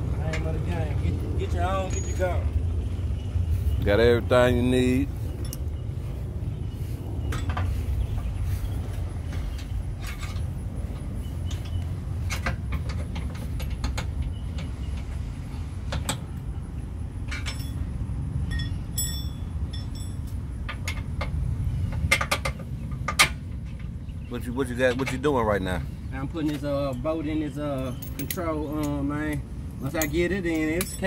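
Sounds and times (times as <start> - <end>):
steady low rumble: 0.0 - 31.0
ringing clinks: 17.3 - 20.4, 26.9 - 31.0
metallic tool clicks and clinks: 27.8 - 29.1.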